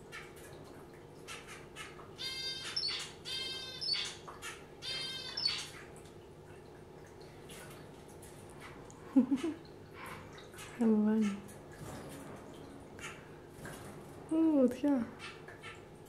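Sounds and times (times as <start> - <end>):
finch calls: 1.3 - 5.9.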